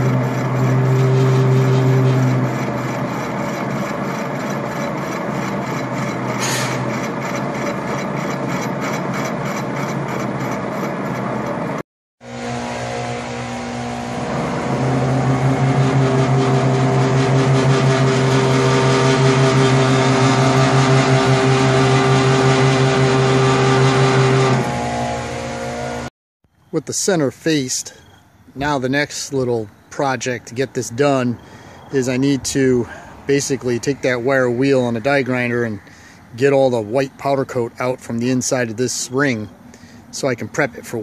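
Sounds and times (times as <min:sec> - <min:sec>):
metal lathe humming: 0:00.0 - 0:26.1
brief high hiss: 0:06.4 - 0:06.8.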